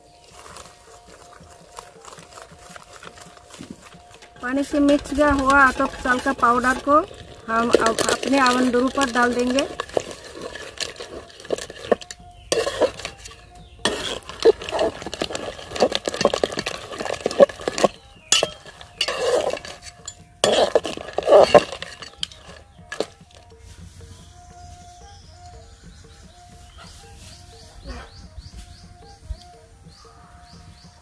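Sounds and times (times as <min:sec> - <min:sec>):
metal ladle scraping a pot: 0:00.1 - 0:23.6
steel bowl clinking on rim: 0:00.4 - 0:23.5.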